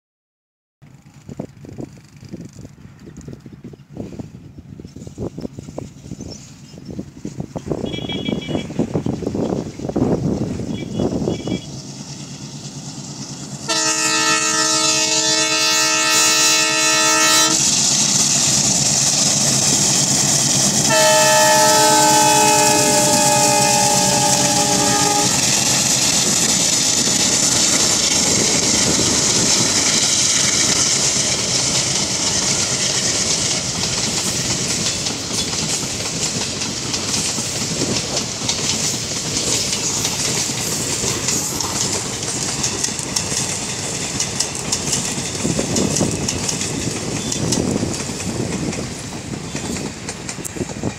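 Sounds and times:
train wheels clacking on rails: 4.9s - 50.9s
locomotive horn blasts: 7.8s - 8.8s, 13.7s - 17.7s, 20.8s - 25.8s.

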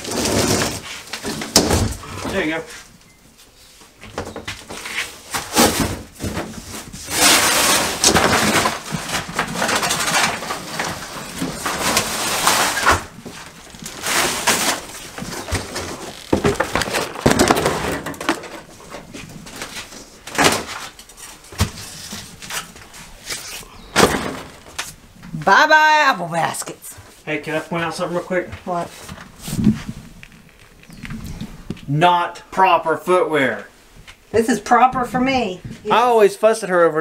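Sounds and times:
drywall crunching and scraping: 0.0s - 2.9s, 4.1s - 25.0s.

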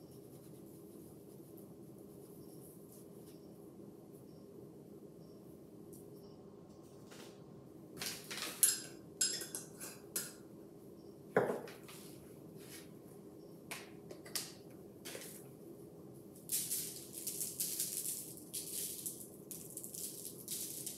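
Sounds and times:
jar knocking on wooden counter: 11.4s - 11.7s.

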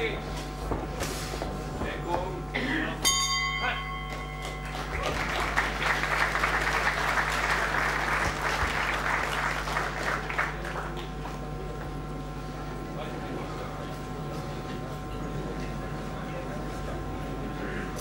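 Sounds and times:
boxing ring bell: 3.0s - 4.9s
crowd applauding: 4.1s - 11.8s.

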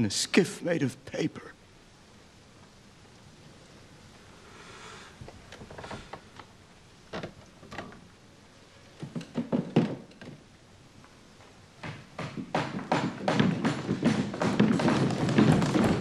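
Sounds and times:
knocks on wood: 9.0s - 10.4s, 11.8s - 16.0s.

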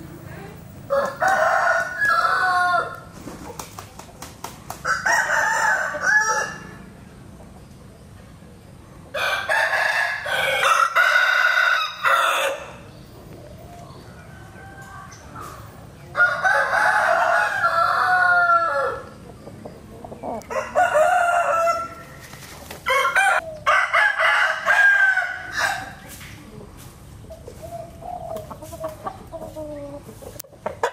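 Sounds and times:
rooster crowing: 0.9s - 3.1s, 4.8s - 6.8s, 9.1s - 12.8s, 14.2s - 19.2s, 20.4s - 22.2s, 22.9s - 26.0s.

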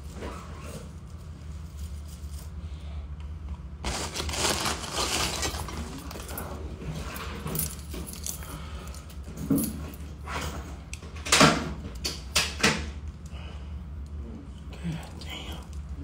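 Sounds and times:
plastic bag crinkling: 3.8s - 6.6s.

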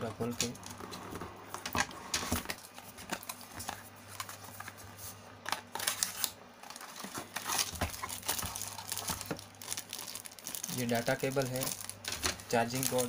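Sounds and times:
cardboard packaging scraping and rustling: 1.9s - 9.4s.

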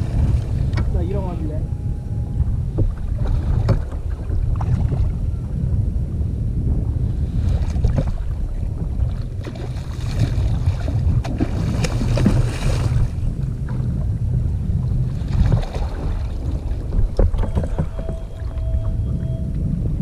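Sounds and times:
wind buffeting microphone: 0.0s - 20.0s
fish thrashing and splashing: 9.4s - 13.2s.

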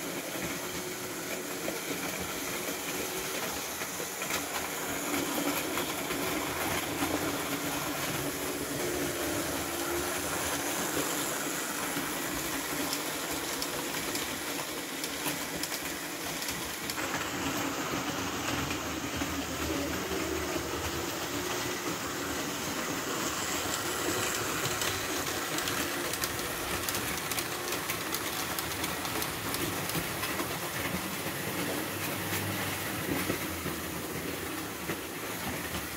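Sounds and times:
model train running: 0.0s - 35.9s
wheels clicking over rails: 0.0s - 35.9s.

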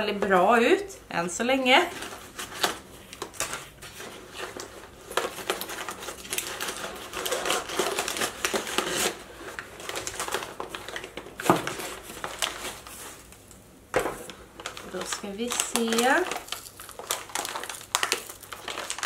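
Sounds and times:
packing paper rustling: 1.8s - 19.0s.

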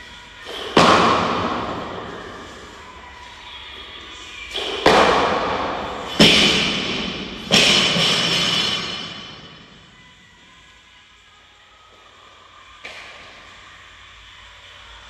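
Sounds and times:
steel bar and plates rattling: 6.0s - 9.6s.

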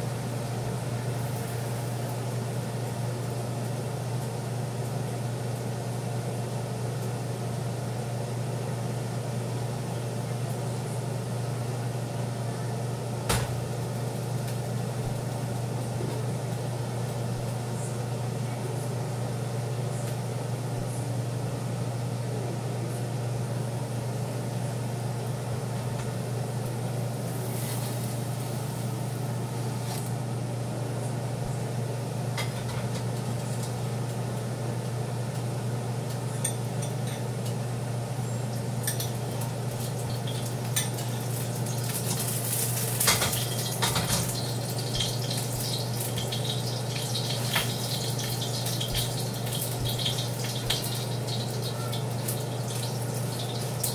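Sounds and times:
steady low hum: 0.0s - 53.9s
dishes and utensils clinking: 43.0s - 46.6s.

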